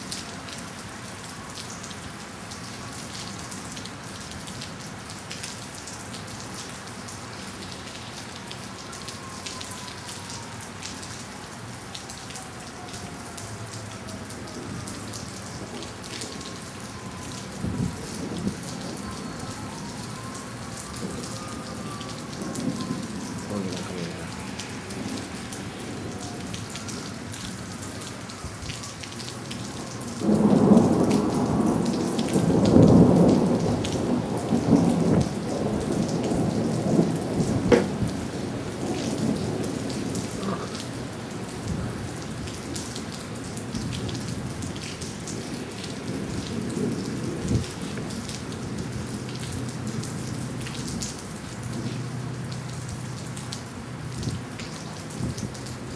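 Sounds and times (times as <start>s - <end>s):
steady rain: 0.0s - 55.9s
thunder rolling: 17.0s - 23.8s, 30.2s - 39.5s.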